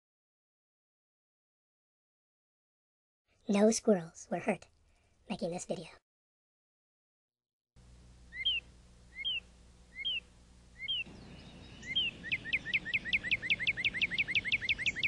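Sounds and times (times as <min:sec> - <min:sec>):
low steady hum: 0:07.8 - 0:15.0
songbird singing whistled notes: 0:08.3 - 0:15.0.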